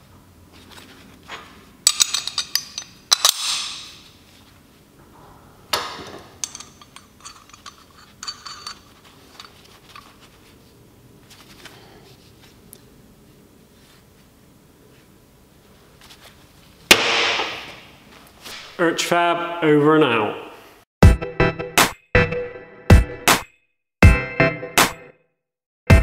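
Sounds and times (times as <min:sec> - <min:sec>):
steel parts clinking: 0:01.8 - 0:04.2, 0:05.7 - 0:10.3.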